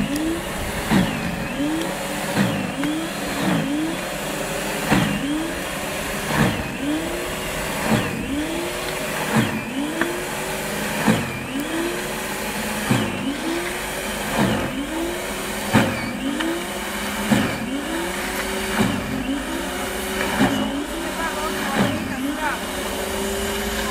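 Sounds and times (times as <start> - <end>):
electric snow thrower motor: 0.0 - 23.9.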